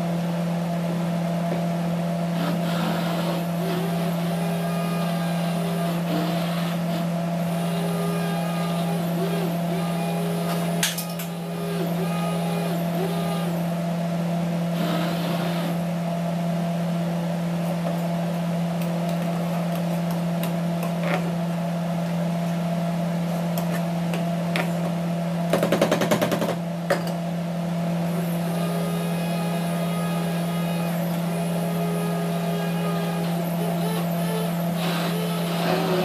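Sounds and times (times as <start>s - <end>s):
immersion blender motor hum: 2.3s - 13.7s, 14.7s - 15.8s, 28.0s - 36.0s.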